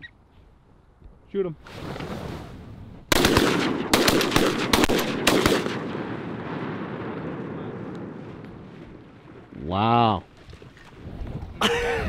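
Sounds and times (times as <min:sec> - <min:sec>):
shotgun blasts echoing: 0:03.1 - 0:08.6.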